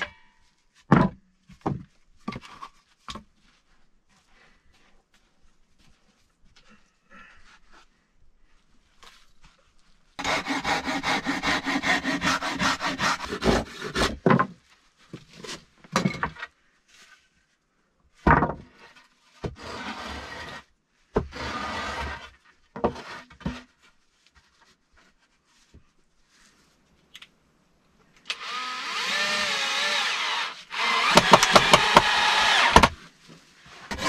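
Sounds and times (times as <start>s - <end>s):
hand saw cutting wood: 10.2s - 14.2s, 19.4s - 20.6s, 21.3s - 22.3s, 28.3s - 33.0s, 33.8s - 34.0s.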